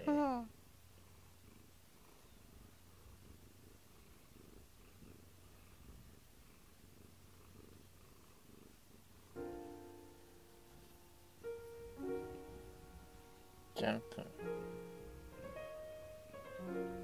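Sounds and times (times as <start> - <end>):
cat purring: 0.0 - 17.0
piano chord: 9.4 - 17.0.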